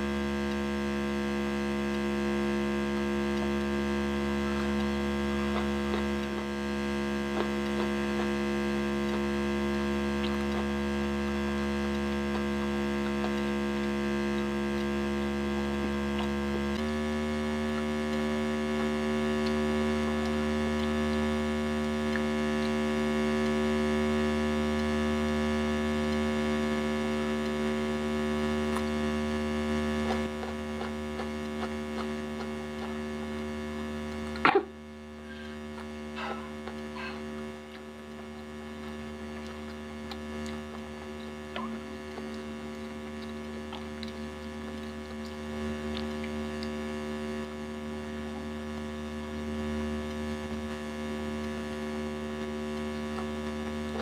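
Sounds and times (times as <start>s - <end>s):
electrical mains hum: 0.0s - 54.0s.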